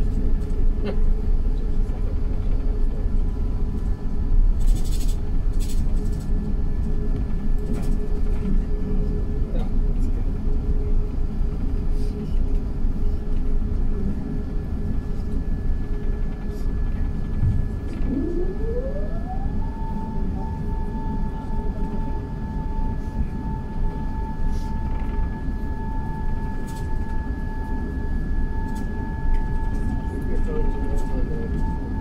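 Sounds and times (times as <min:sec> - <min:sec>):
aircraft cabin rumble: 0:00.0 - 0:32.0
rising whine: 0:17.4 - 0:32.0.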